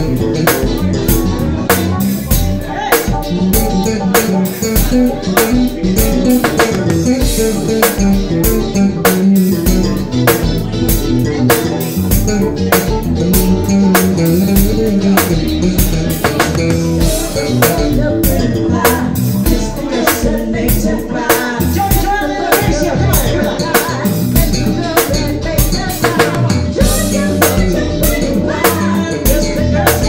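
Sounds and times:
drum kit beat: 0.0 - 30.0
live rock band playing: 0.0 - 30.0
woman singing: 11.4 - 30.0.

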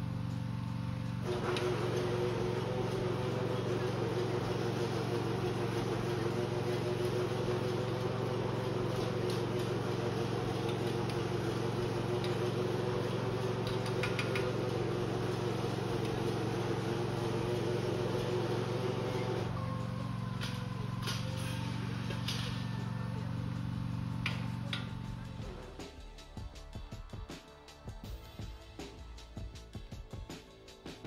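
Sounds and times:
motor humming: 0.0 - 29.7.

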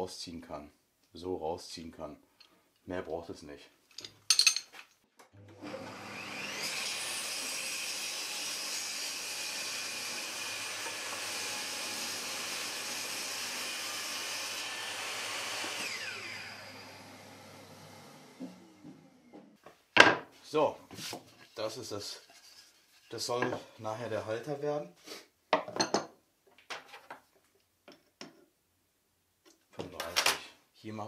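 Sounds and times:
table saw motor whining: 5.4 - 19.5.

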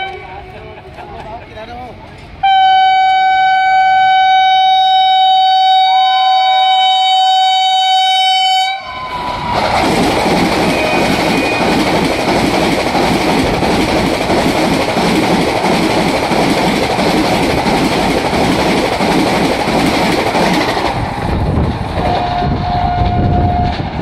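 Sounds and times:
train horn: 0.0 - 0.6, 2.4 - 9.5, 10.6 - 11.6, 22.1 - 23.9
electric train passing at speed: 0.0 - 24.0.

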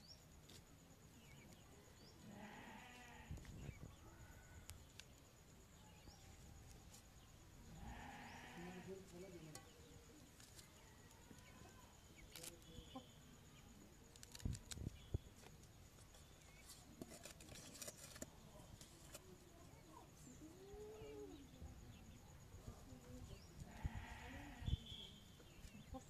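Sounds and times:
faint livestock calls: 2.2 - 4.7, 7.7 - 9.2, 23.6 - 25.2.

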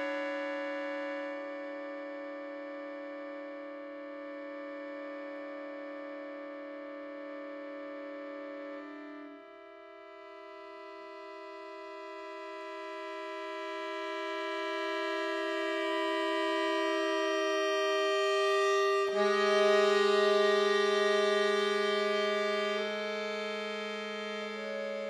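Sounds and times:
accordion chord: 0.0 - 3.6, 10.2 - 25.0.

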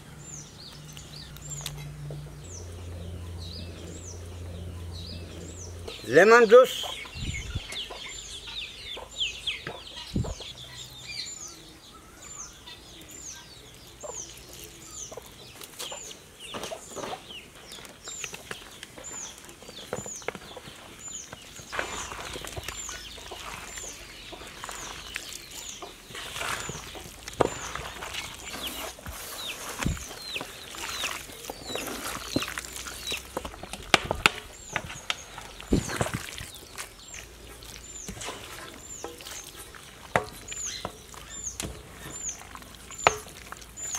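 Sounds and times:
bird chirping: 0.0 - 43.9
hands squelching and slapping meat: 21.7 - 43.9.

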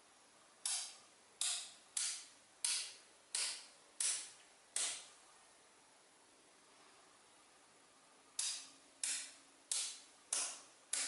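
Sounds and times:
magnetic balls snapping together: 0.6 - 5.1, 8.4 - 11.0.

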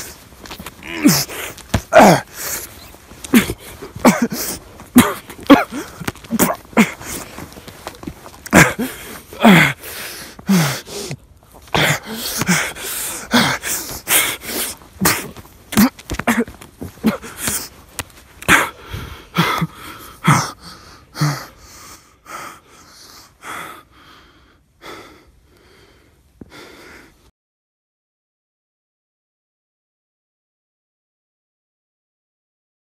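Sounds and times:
man's strained vocal sounds: 0.0 - 17.8, 18.4 - 22.6
man breathing heavily: 0.0 - 27.3.

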